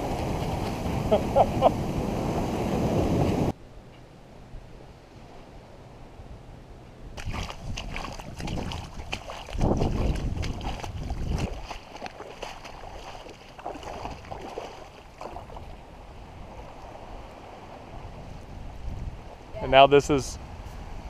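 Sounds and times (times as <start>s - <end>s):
wind buffeting microphone: 0.0s - 3.6s, 7.1s - 21.0s
footsteps splashing through water: 7.2s - 15.8s.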